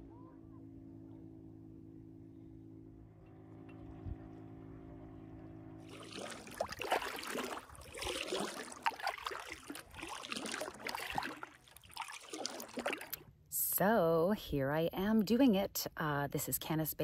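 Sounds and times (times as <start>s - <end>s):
faint hum: 0.0s - 17.0s
paddle strokes splashing: 5.9s - 13.2s
water dripping and sloshing: 5.9s - 13.2s.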